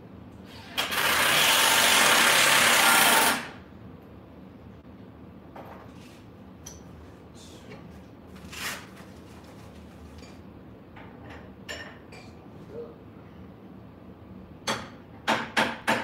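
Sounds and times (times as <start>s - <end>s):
steady low hum: 3.5s - 15.2s.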